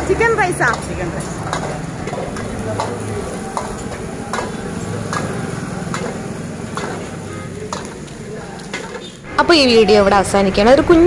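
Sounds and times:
frying sizzle: 0.0s - 9.8s
ladle clanging against wok: 0.6s - 9.2s.

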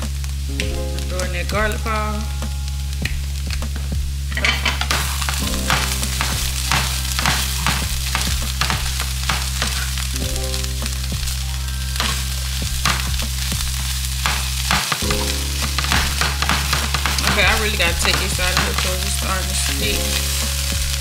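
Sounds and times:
meat sizzling in a frying pan: 4.4s - 21.0s.

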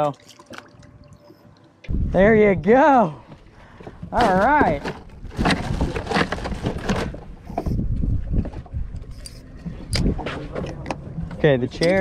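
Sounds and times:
water around a boat: 0.0s - 12.0s
wind: 0.0s - 12.0s.

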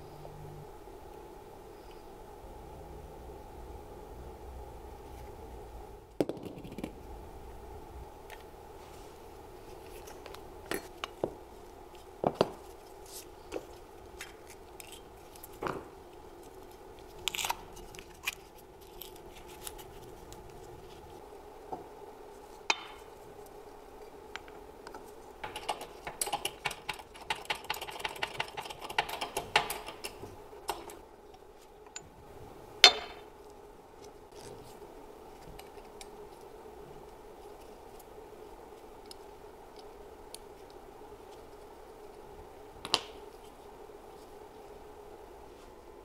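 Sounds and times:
low hum: 0.0s - 12.2s.

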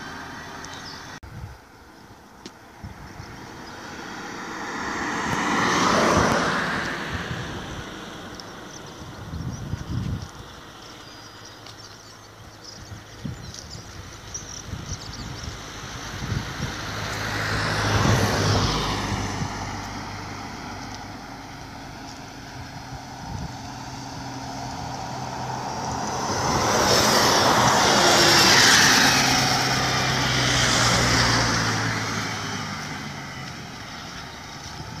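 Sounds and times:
vehicle passing: 3.4s - 9.4s, 14.1s - 35.0s
bus engine humming: 19.6s - 35.0s.

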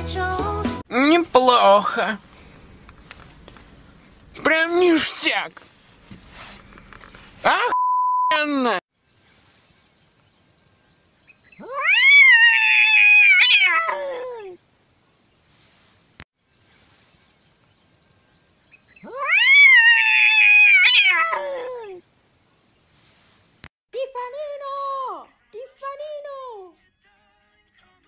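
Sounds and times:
cat yowling: 11.6s - 14.6s, 19.0s - 22.0s.

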